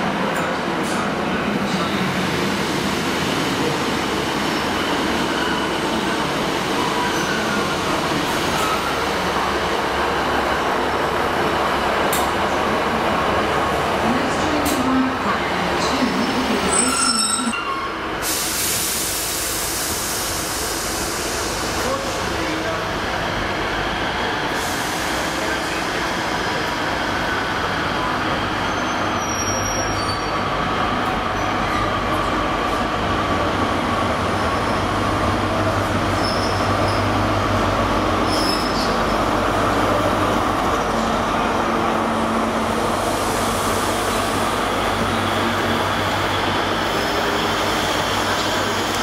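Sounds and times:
train rolling noise: 0:00.0 - 0:49.0
high brake squeals: 0:16.7 - 0:18.8, 0:28.6 - 0:30.4, 0:36.1 - 0:37.1, 0:38.2 - 0:39.0.

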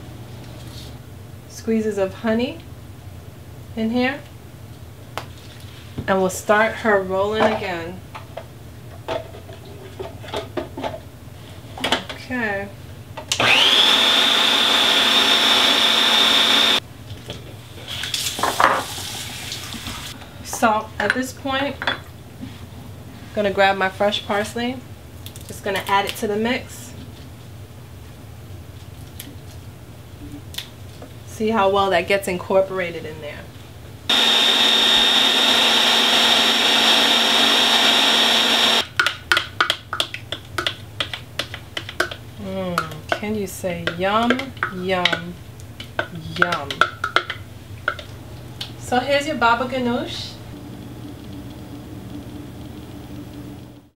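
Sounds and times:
food processor whining: 0:13.3 - 0:16.8, 0:34.1 - 0:38.9.

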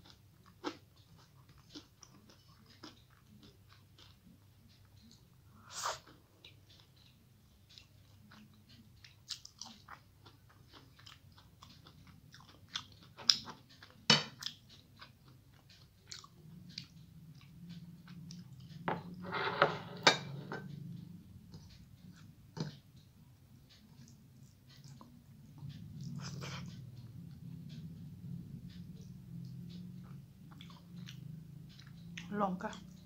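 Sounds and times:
chewing crispy fried food: 0:00.0 - 0:05.4, 0:06.0 - 0:18.8, 0:28.6 - 0:33.0.

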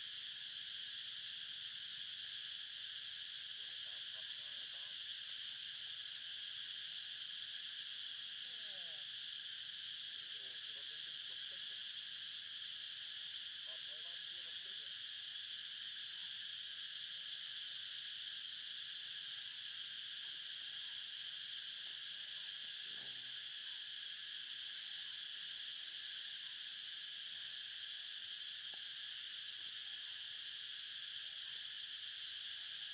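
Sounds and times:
insects buzzing: 0:00.0 - 0:32.9.

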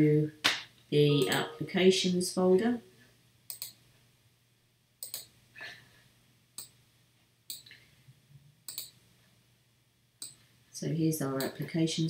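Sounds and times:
computer mouse clicking: 0:03.5 - 0:03.8, 0:05.0 - 0:05.3, 0:07.5 - 0:07.7, 0:08.7 - 0:09.0, 0:10.2 - 0:10.4.

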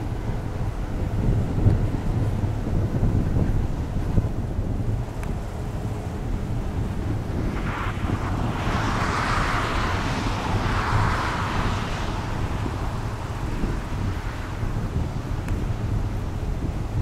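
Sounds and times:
wind buffeting microphone: 0:00.0 - 0:17.0
rushing sound: 0:06.6 - 0:15.9.

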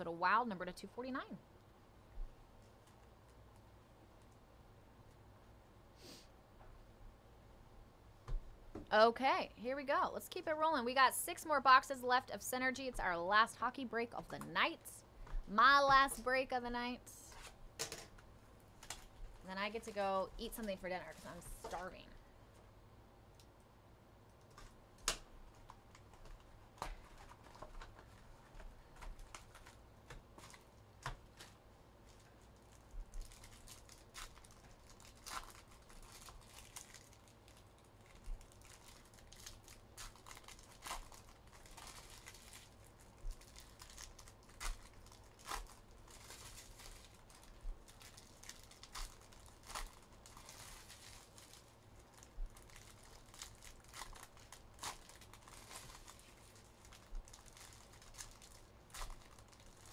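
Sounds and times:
plastic wrapping crinkling: 0:17.2 - 0:22.1, 0:24.4 - 0:59.9.

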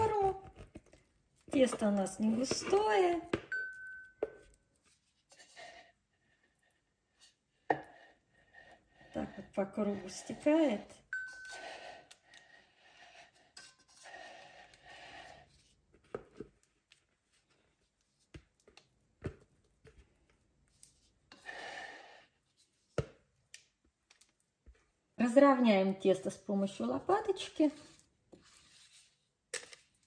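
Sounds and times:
spatula tapping bowl: 0:01.5 - 0:04.6
spatula scraping batter from bowl: 0:04.4 - 0:06.0, 0:13.2 - 0:16.6, 0:27.3 - 0:29.9.

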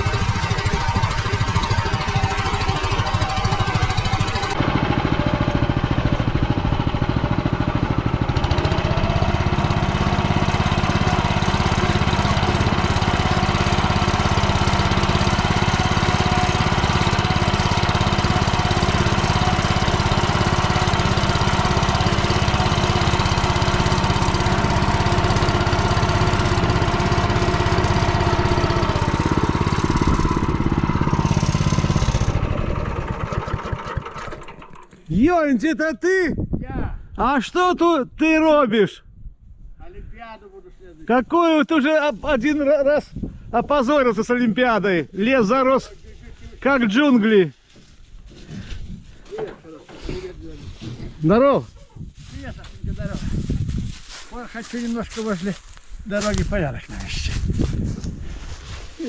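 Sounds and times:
single-cylinder engine running: 0:00.0 - 0:35.0.

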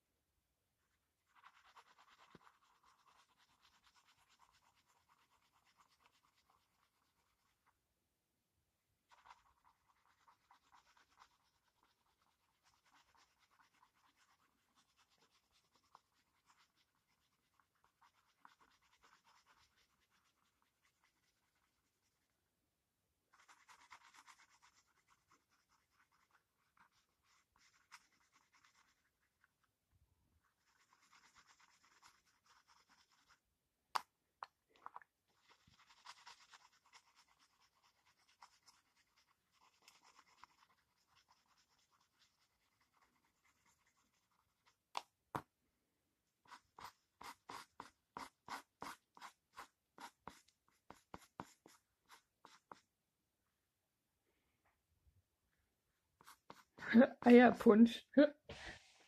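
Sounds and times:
pencil scratching on paper: 0:01.2 - 0:07.7, 0:09.1 - 0:22.3, 0:23.3 - 0:29.4, 0:30.4 - 0:33.4, 0:35.3 - 0:44.8, 0:46.4 - 0:52.9, 0:56.2 - 0:57.4.

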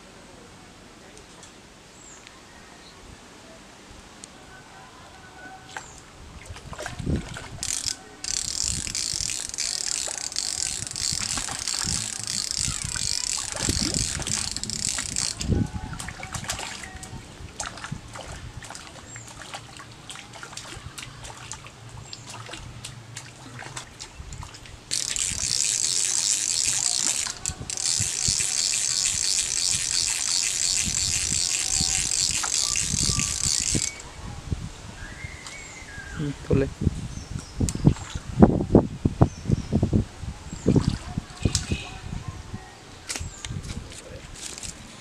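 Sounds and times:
fishing reel ratcheting: 0:07.6 - 0:15.6, 0:24.9 - 0:34.0, 0:44.4 - 0:44.8.

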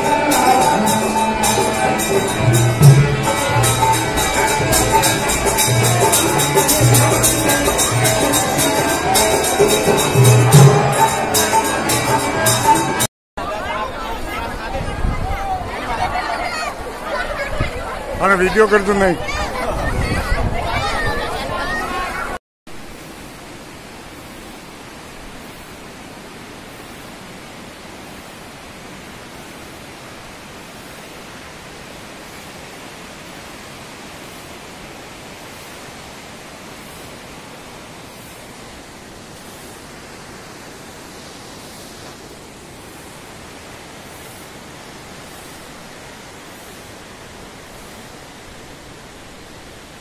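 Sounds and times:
river rushing: 0:00.0 - 0:50.0.

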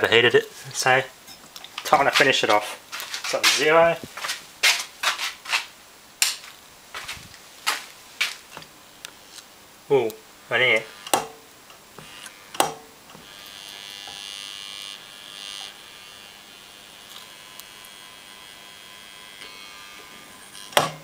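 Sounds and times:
speaker coil buzzing: 0:06.3 - 0:21.0
sharp click: 0:11.0 - 0:11.4, 0:12.6 - 0:12.8.

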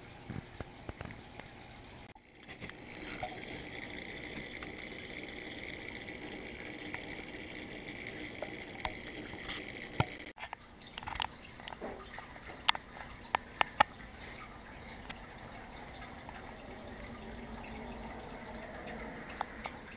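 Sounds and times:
aquarium equipment hum underwater: 0:00.0 - 0:19.9
water drips: 0:10.0 - 0:19.9.

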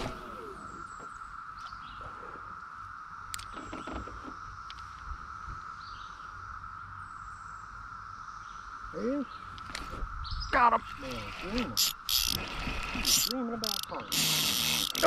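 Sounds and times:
cicadas droning: 0:00.0 - 0:15.0
faint ticks: 0:04.3 - 0:05.1.

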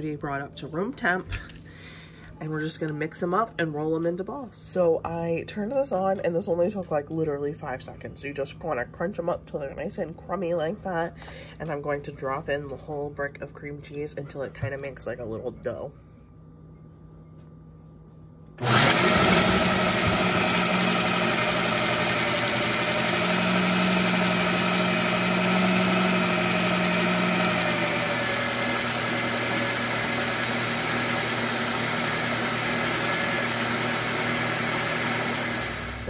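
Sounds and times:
food processor motor whirring: 0:18.6 - 0:36.0.

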